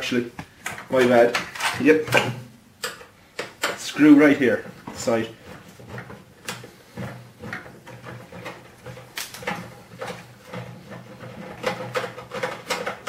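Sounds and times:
screwdriver clicking on sheet metal: 2.8 - 3.9, 11.6 - 13.0.

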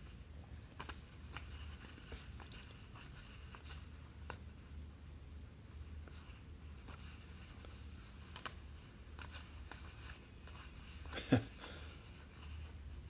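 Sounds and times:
trading cards being flipped: 0.6 - 4.5, 6.0 - 11.1.

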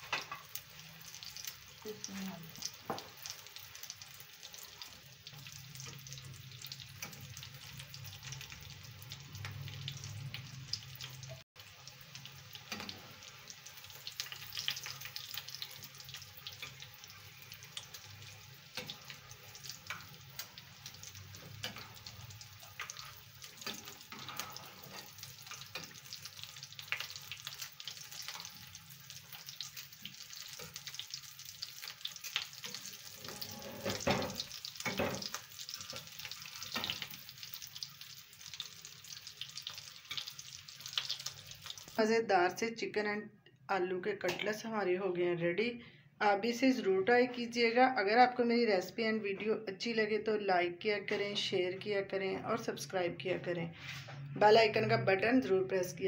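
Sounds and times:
food sizzling and popping in oil: 0.0 - 42.6.

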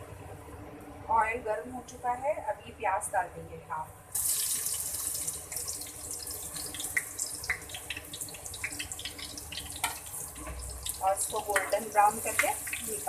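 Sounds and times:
onion sizzling in hot oil: 4.1 - 13.0
oil crackling and popping: 4.2 - 13.0.

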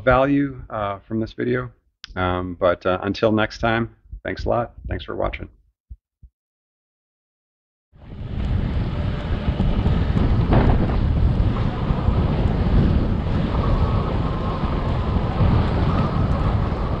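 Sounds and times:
wind buffeting microphone: 8.0 - 17.0.

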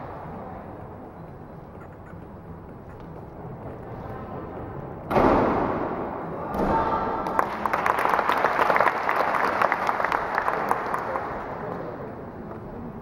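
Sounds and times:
spectators applauding and cheering: 7.2 - 11.7.

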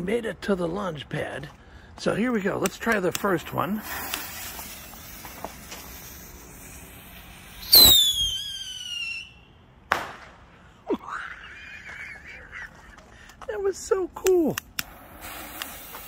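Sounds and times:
fuse sizzling: 3.1 - 8.9
rocket whistle falling in pitch: 7.6 - 9.5.

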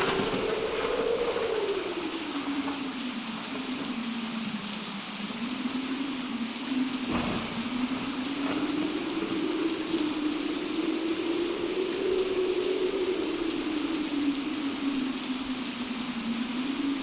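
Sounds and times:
thunder crack: 0.0 - 3.5, 7.0 - 11.0
moaning wind: 0.0 - 17.0
rain hiss: 0.0 - 17.0.

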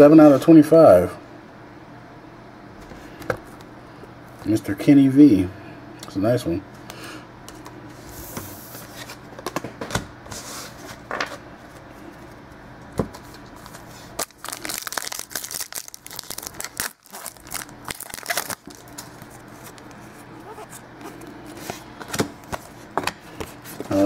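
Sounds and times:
card pack wrapper crinkling: 13.6 - 20.8.

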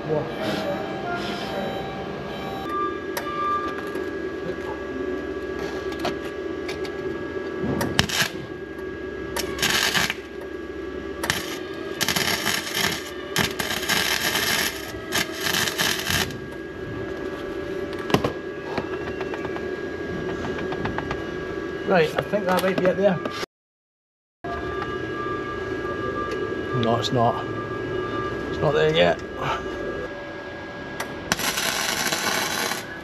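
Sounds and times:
steady hum: 0.0 - 23.5, 24.5 - 33.0
electric welder crackling: 7.9 - 8.5, 9.3 - 10.4, 11.2 - 16.6, 31.0 - 33.0.

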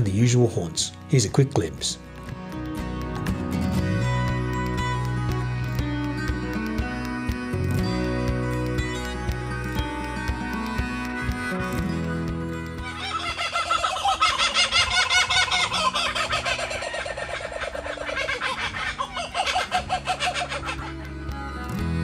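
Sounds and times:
kookaburras laughing: 12.8 - 21.3.

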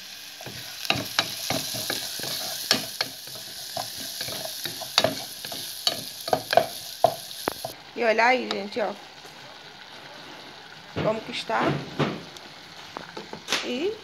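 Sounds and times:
vegetables sizzling in oil: 0.0 - 14.0
spoon knocking and scraping pot: 0.4 - 7.8.

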